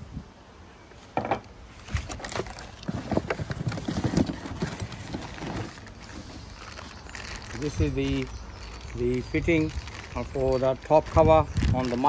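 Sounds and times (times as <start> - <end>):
cardboard flaps knocking and scraping: 1.2 - 6.3.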